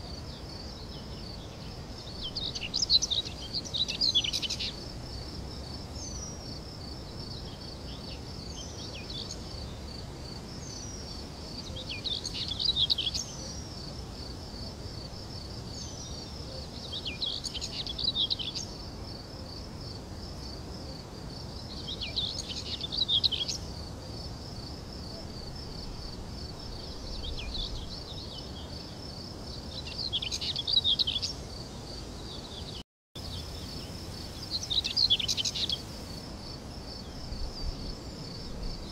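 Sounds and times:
insect trill: 0:33.2 - 0:38.9.

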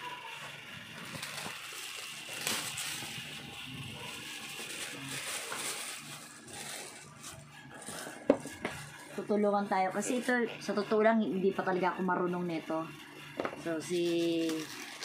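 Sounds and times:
plastic packaging crinkling: 0:00.8 - 0:09.2, 0:14.0 - 0:15.0.

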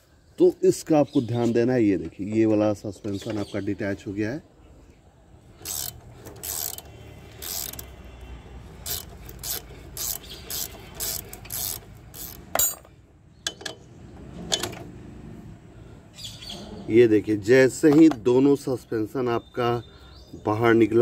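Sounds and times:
ratcheting spanner clicking: 0:05.6 - 0:07.9, 0:08.8 - 0:12.9.

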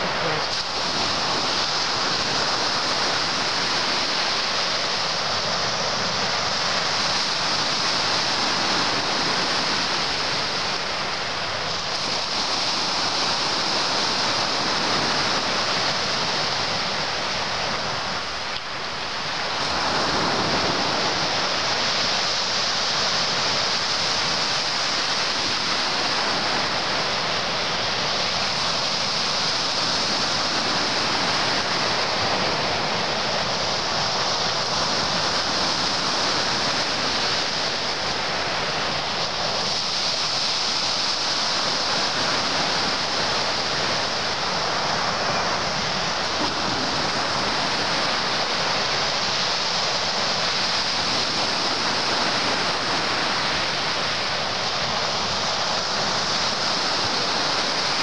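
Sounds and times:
surf breaking on pebble beach: 0:19.5 - 0:58.0.

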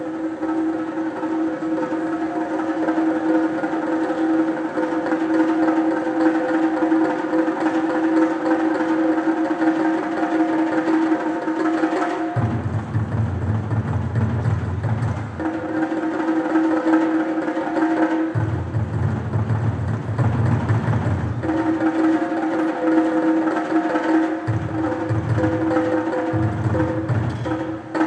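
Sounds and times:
high-pitched drum roll: 0:00.0 - 0:28.0
deep low drum roll: 0:18.3 - 0:22.6.

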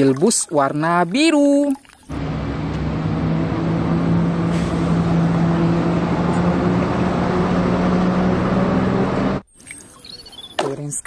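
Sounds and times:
bus diesel engine driving past: 0:02.1 - 0:09.5
road noise: 0:02.1 - 0:10.7.

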